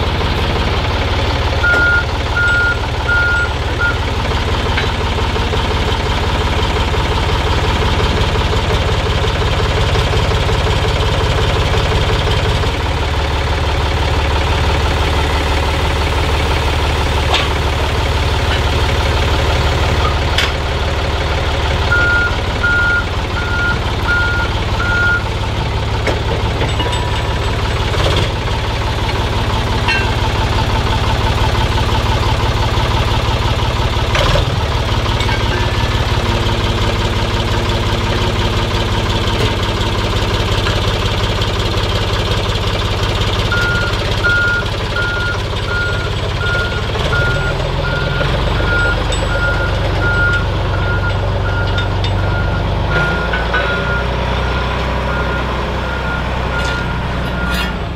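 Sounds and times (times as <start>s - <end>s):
forklift engine running: 0.0s - 57.9s
reversing alarm beeping: 1.6s - 4.2s, 21.8s - 25.4s, 43.4s - 57.8s
metal clanks: 4.5s - 6.0s, 17.2s - 21.0s, 25.8s - 31.1s, 34.1s - 37.2s, 56.4s - 57.9s.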